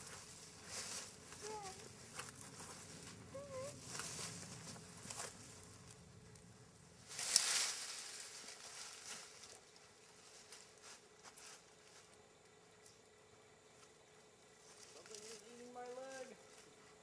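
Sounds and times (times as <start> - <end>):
branches rustling against wooden poles: 0.0 - 17.0.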